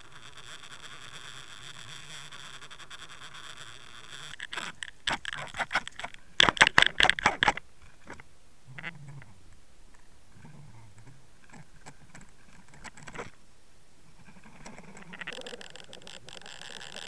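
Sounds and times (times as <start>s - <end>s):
sharp knocks and rattles: 4.3s - 8.2s.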